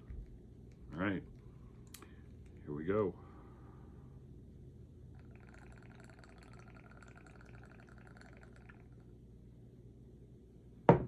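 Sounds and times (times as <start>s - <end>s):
liquid trickling into glass: 5.2s - 9.1s.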